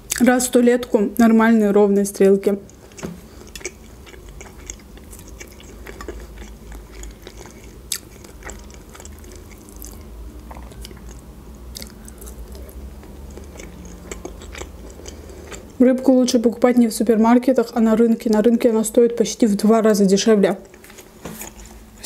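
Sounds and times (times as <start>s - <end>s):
moist chewing mouth sounds: 2.6s - 15.8s.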